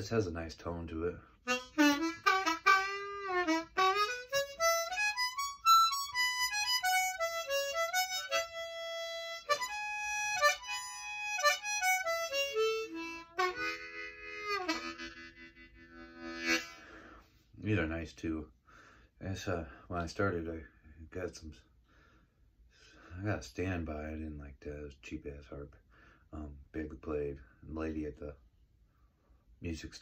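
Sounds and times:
harmonica playing: 0:01.4 - 0:17.2.

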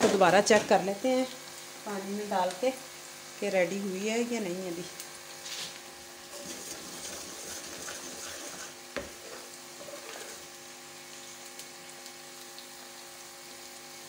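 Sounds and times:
faint steady sizzle: 0:00.0 - 0:14.0
wooden spoon stirring syrup: 0:06.4 - 0:10.5.

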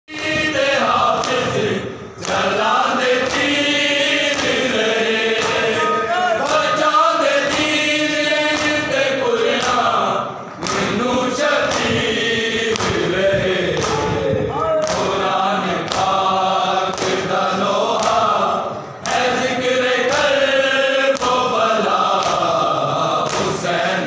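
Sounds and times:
men chanting together: 0:00.1 - 0:24.0.

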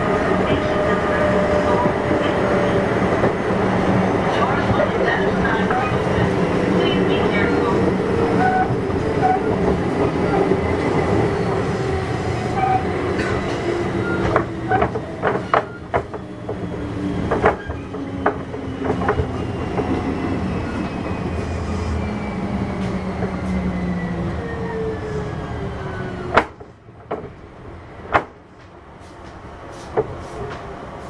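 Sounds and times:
train wheel rumble: 0:00.0 - 0:31.0
rail joint clicks: 0:00.4 - 0:20.0, 0:26.2 - 0:31.0.

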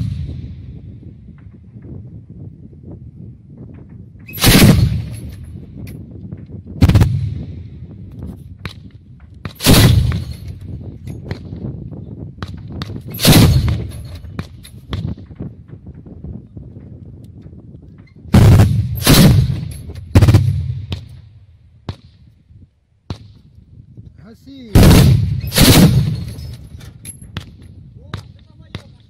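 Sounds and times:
autocannon firing bursts: 0:04.4 - 0:05.2, 0:06.8 - 0:07.3, 0:09.6 - 0:10.3, 0:13.2 - 0:14.0, 0:18.3 - 0:21.1, 0:24.8 - 0:26.4.

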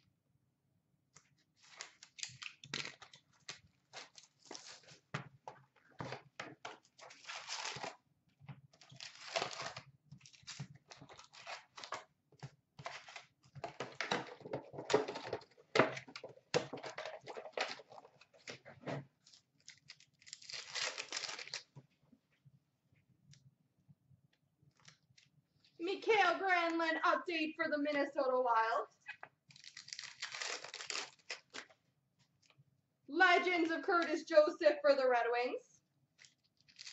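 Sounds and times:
packs and cards crinkling: 0:01.5 - 0:08.0, 0:08.8 - 0:12.1, 0:12.8 - 0:21.8, 0:29.5 - 0:31.8, 0:36.2 - 0:36.9
cardboard and wrapper tearing: 0:01.6 - 0:05.0, 0:06.9 - 0:08.0, 0:08.8 - 0:12.0, 0:16.8 - 0:18.6, 0:19.2 - 0:21.8, 0:29.5 - 0:31.7, 0:36.2 - 0:36.9.

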